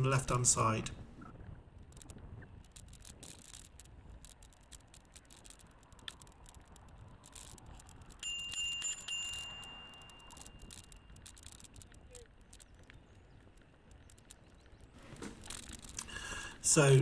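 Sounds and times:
bike rattling over gravel: 0.0s - 17.0s
bicycle bell dings: 8.1s - 11.2s.

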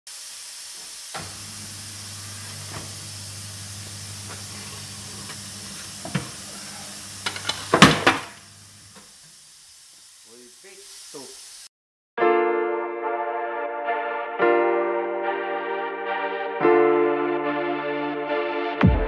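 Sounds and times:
high hiss: 0.1s - 11.7s
electric motor hum: 0.9s - 9.0s.

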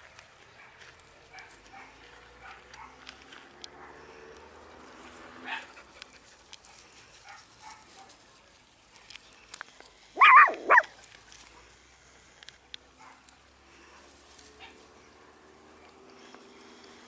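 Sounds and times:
dog yapping: 10.2s - 10.9s.

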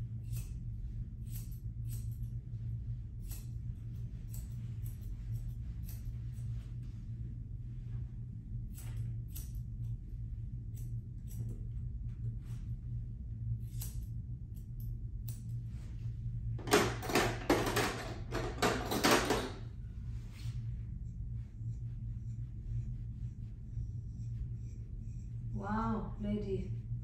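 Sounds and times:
steady low hum: 0.0s - 27.0s
tools clattering and rattling: 16.6s - 19.6s.

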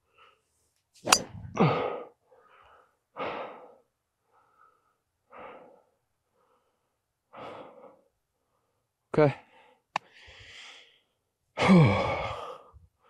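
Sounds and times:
person breathing out heavily: 1.3s - 2.1s.

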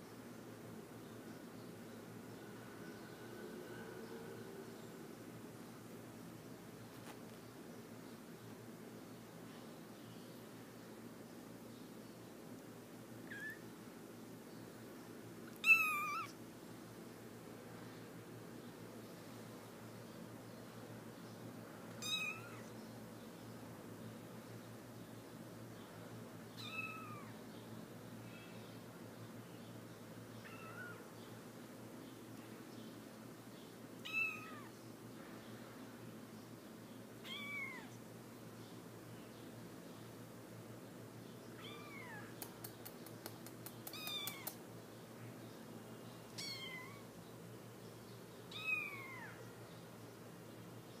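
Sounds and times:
kittens mewing: 15.6s - 16.4s, 30.4s - 31.0s, 37.2s - 38.0s, 41.6s - 42.4s, 43.8s - 44.6s, 46.4s - 47.1s, 48.5s - 49.4s
light clicks: 42.4s - 44.6s.

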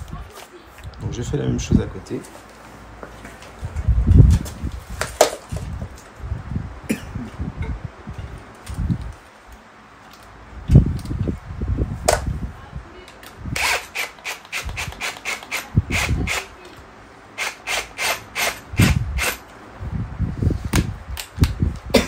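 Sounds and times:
ratchet tool clicking: 13.6s - 16.5s, 17.4s - 19.4s.

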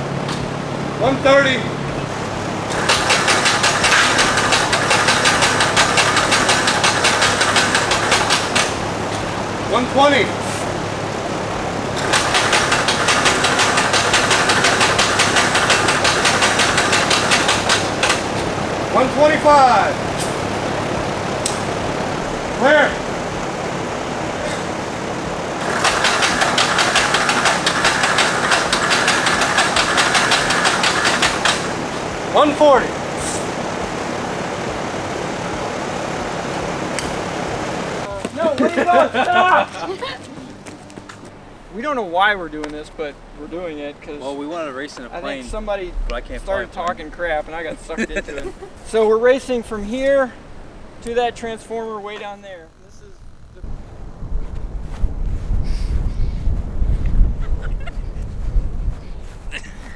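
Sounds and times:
light aircraft piston engine running: 0.0s - 59.9s
rhythmic clicking clatter: 2.7s - 8.8s, 12.0s - 18.3s, 25.6s - 31.8s.

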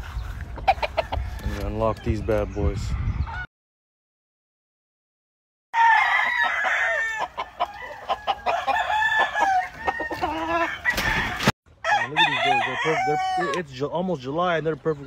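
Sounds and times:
roosters crowing: 5.8s - 13.8s.

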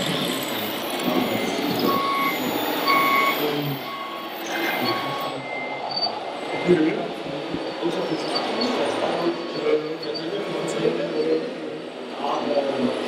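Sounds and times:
truck reversing beeper: 0.0s - 7.1s
hall background noise: 0.0s - 13.0s.

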